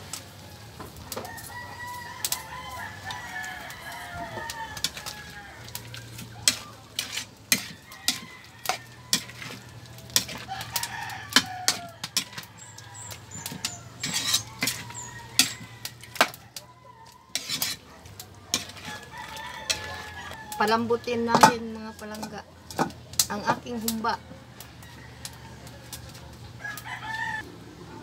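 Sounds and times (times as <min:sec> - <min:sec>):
metal spatula scraping wok: 0:03.0 - 0:24.0.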